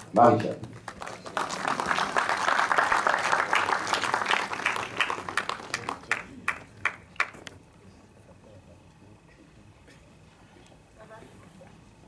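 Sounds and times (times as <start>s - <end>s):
audience applause: 0.5s - 7.4s.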